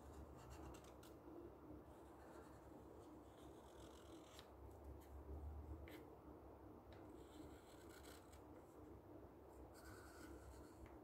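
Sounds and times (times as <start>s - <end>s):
marker scratching on paper: 0.0s - 1.2s, 1.9s - 4.5s, 7.1s - 8.4s, 9.7s - 10.9s.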